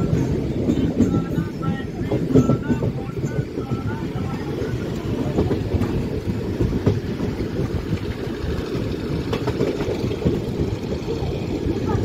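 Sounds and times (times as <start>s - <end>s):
train rumble from inside coach: 0.0s - 12.0s.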